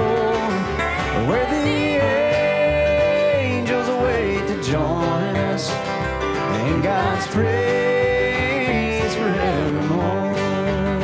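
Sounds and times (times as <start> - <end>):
bending held notes melody: 0.0 - 11.0
country band playing: 0.0 - 11.0.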